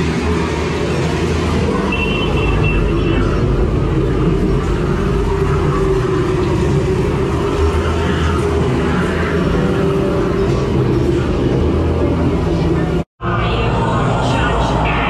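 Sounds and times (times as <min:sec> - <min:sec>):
low rumbling drone: 0:00.0 - 0:15.0.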